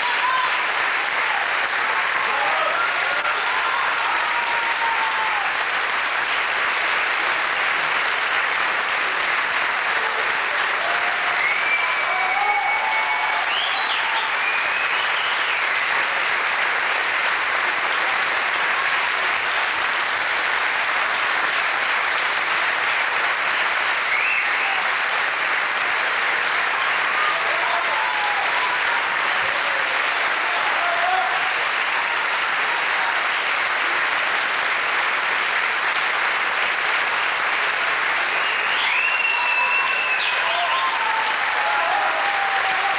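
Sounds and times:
brief cheers: 0.0 - 1.5, 2.1 - 5.5, 10.7 - 15.8, 27.0 - 31.6, 38.4 - 42.9
audience applauding: 0.0 - 42.9.

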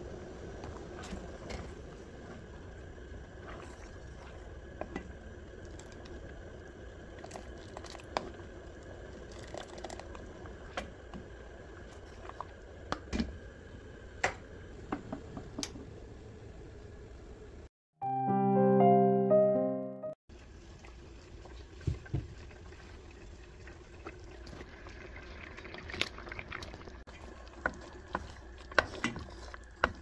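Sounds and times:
wooden spoon stirring in pot: 0.1 - 13.2, 20.8 - 30.0
thick jam bubbling and popping: 7.0 - 13.2, 21.3 - 30.0.

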